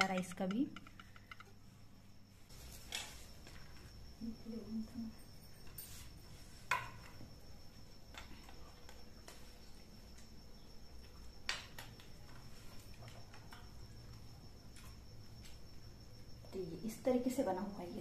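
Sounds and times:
faint high-pitched whine: 0.0s - 18.0s.

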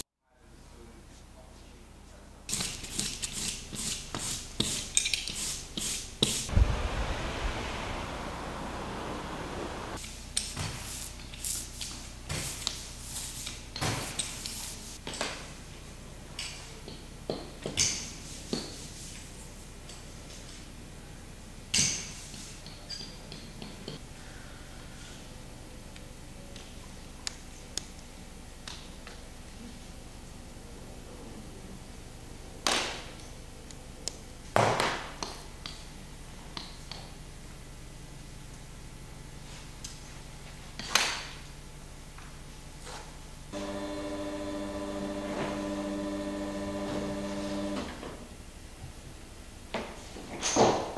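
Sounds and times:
steady background noise: 6.3s - 10.0s
steady low hum: 6.5s - 10.0s.

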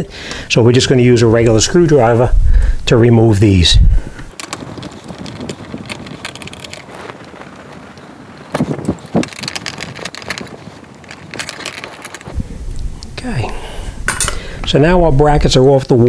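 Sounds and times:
metallic knocks: 14.1s - 14.4s.

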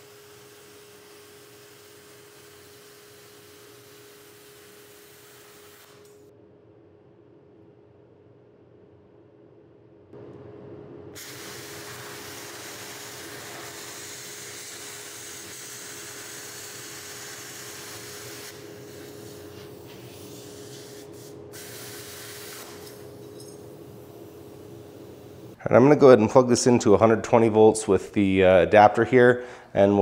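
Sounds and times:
plasma cutter hissing: 0.0s - 6.2s, 11.2s - 23.4s.

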